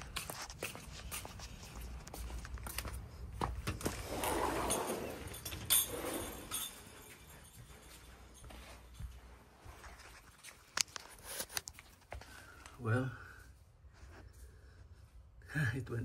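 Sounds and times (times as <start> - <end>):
footsteps on tiles: 0.0 - 4.2, 6.2 - 12.4.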